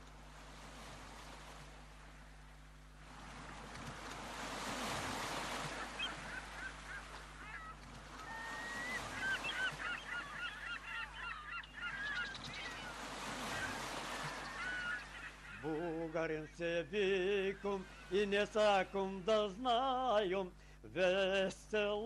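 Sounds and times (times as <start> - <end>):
waves rushing: 0.4 - 2.4, 3.0 - 20.2
seagulls crying: 5.2 - 16.4, 17.0 - 19.4.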